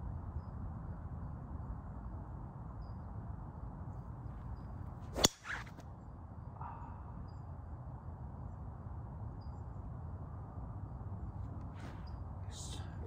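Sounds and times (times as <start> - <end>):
golf club whoosh: 5.0 - 5.8
club striking golf ball: 5.1 - 5.7.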